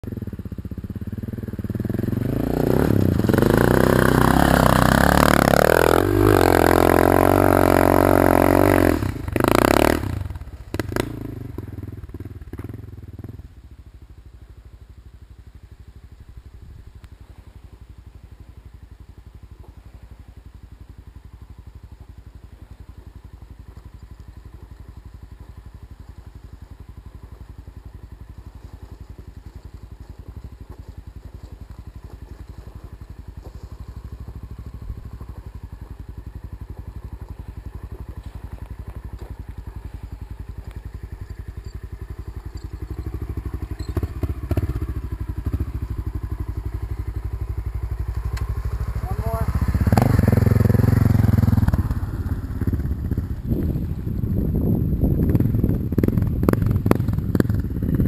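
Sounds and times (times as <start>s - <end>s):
faint low engine rumble: 0.0s - 58.0s
motorcycle engine revving hard: 0.1s - 13.4s, 41.0s - 58.0s.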